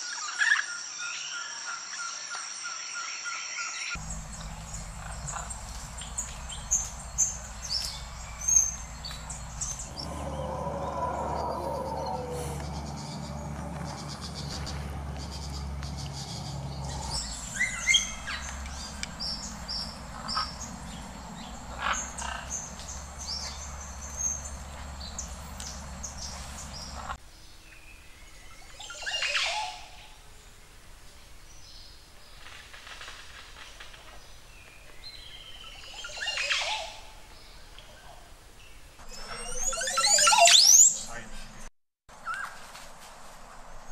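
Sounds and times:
loud gurgling bird song: 0.0s - 32.0s, 34.6s - 41.2s
birds chirping and calling: 3.9s - 27.2s, 27.8s - 30.1s, 34.7s - 38.1s, 38.7s - 41.3s.

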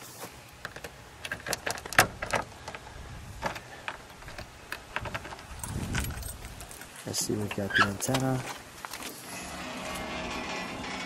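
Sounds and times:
keys jingling: 5.1s - 7.6s.

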